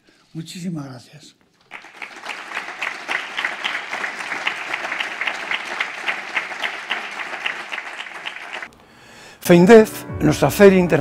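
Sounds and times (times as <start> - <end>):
audience applauding: 1.7 - 8.7.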